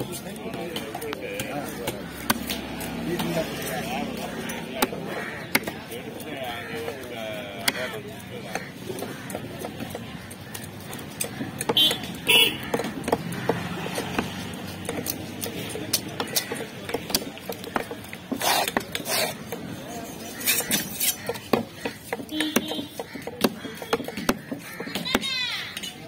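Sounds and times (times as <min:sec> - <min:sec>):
cleaver chopping into wood: 0:01.4 - 0:03.4.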